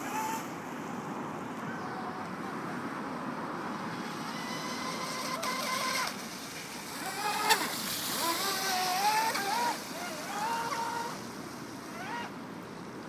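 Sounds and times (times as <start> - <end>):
toy speedboat motor and spray rushing: 0.0 - 0.6, 3.6 - 12.4.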